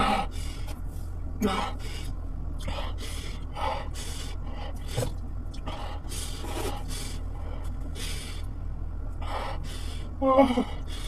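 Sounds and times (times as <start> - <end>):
steady low hum: 0.0 - 11.0
sharp intakes of breath: 1.7 - 8.6.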